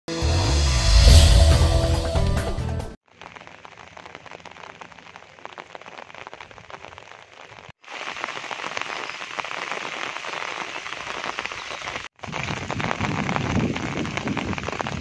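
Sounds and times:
heavy rain falling: 3.2 - 15.0.

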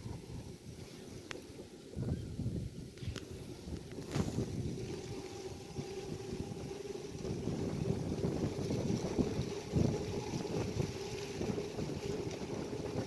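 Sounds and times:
faint steady hum: 0.0 - 13.0
wind buffeting microphone: 0.0 - 13.0.

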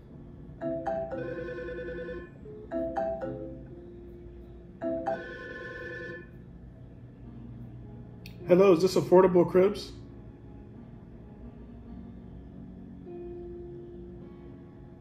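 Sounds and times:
phone ringing melody: 0.6 - 6.4.

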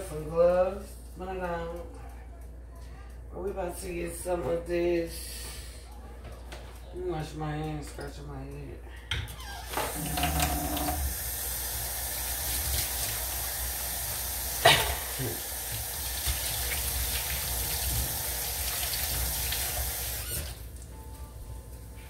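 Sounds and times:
tap running into a sink: 9.7 - 11.2, 14.1 - 20.6.

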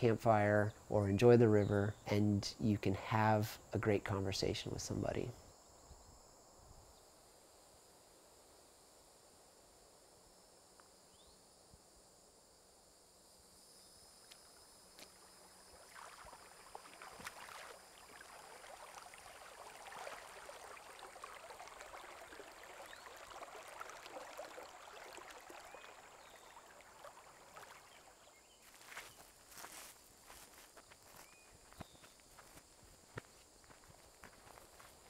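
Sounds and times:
high insect drone: 4.4 - 23.7, 24.6 - 35.0
creek trickling over rocks: 14.3 - 35.0.

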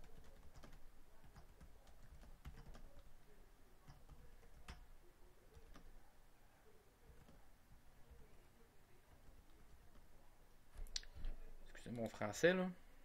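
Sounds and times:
computer keyboard typing: 0.0 - 3.2, 3.8 - 6.0, 7.1 - 7.5, 9.1 - 10.1.

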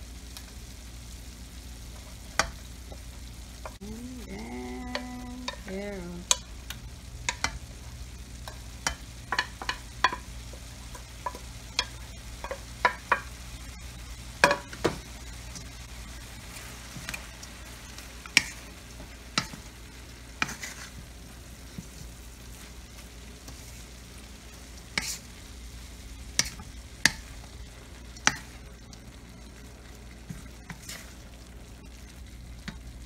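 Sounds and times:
frying sizzle in a wok: 0.0 - 33.0
spatula stirring vegetables: 1.5 - 33.0
spatula knocking against pan: 10.9 - 13.3, 14.4 - 15.0.

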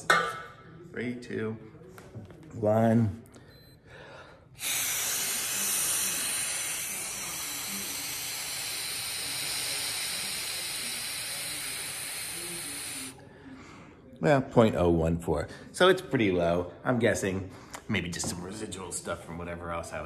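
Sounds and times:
exhale into breathalyzer hissing: 4.1 - 13.6.

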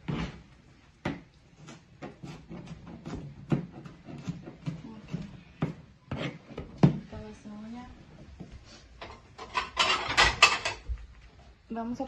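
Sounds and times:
knife chopping on cutting board: 1.0 - 4.8.

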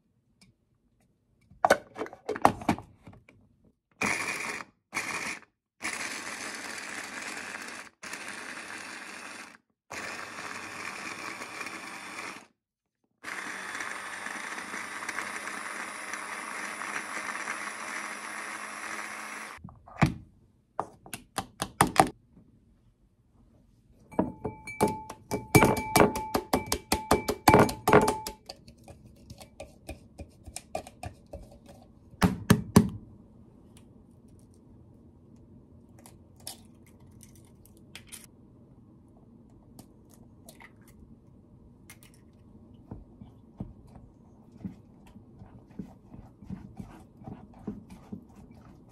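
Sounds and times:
food processor motor chopping: 4.0 - 12.6, 13.2 - 19.6.

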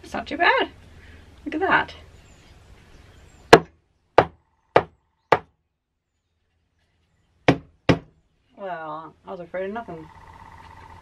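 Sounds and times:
wooden mallet knocking: 3.5 - 5.5, 7.5 - 8.1.

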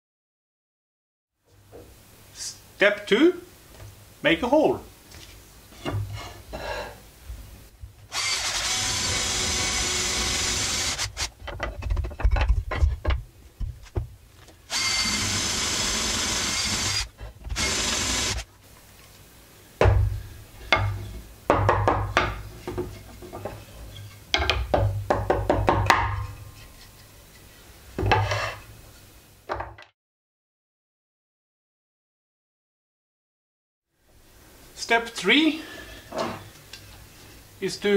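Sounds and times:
cordless drill boring into wood: 8.1 - 11.3, 14.7 - 18.4
wood and tools knocking on table: 20.7 - 23.6, 24.3 - 26.2.

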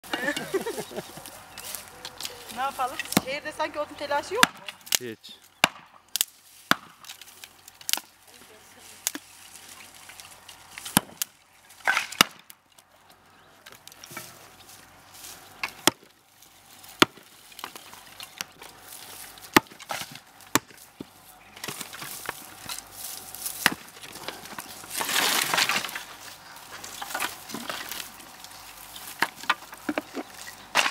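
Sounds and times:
dry rustling and crackling: 0.0 - 5.5, 6.1 - 30.9
axe chopping firewood: 4.4 - 5.0, 5.6 - 8.1, 10.8 - 12.6, 15.6 - 16.2, 17.0 - 18.7, 19.4 - 22.8, 23.5 - 26.1, 29.1 - 30.9.

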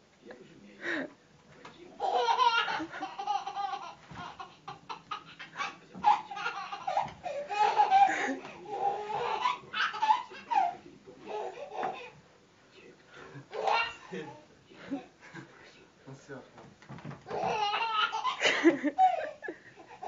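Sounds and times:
baby laughing: 2.0 - 12.2, 13.5 - 15.1, 17.3 - 20.0.

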